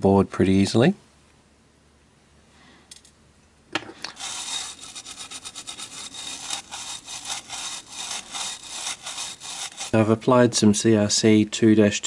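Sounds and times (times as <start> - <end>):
toothbrush scrubbing circuit board: 4.1 - 10.0.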